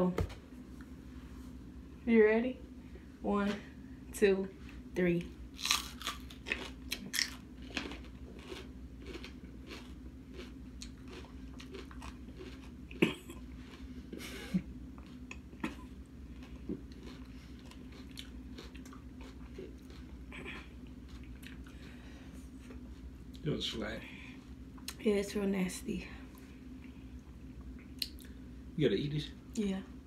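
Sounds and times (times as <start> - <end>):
low steady hum: 0.0 - 30.0
chewing crisp pepper: 5.6 - 21.9.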